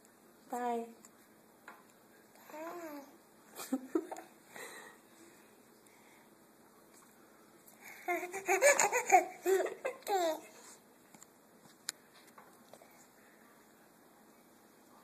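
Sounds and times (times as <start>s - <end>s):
toddler giggling: 8.1s - 10.6s.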